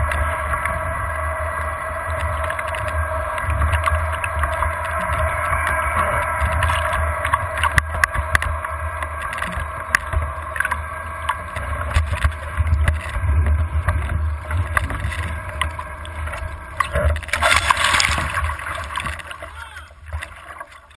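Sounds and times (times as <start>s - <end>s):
water rushing past boat: 0.0s - 20.9s
rush of spray: 16.9s - 20.7s.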